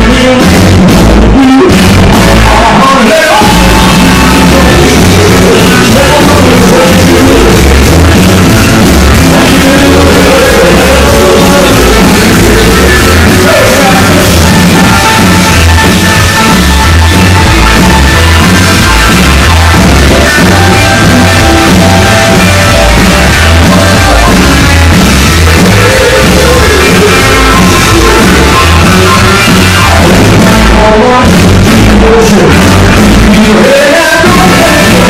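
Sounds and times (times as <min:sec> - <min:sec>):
live rock band playing: 0:00.0 - 0:35.0
man singing: 0:00.0 - 0:35.0.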